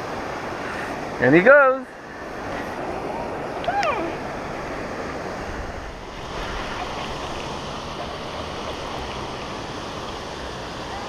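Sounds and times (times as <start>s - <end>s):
wind on microphone: 2.2s - 10.6s
low uneven rumble: 2.2s - 11.0s.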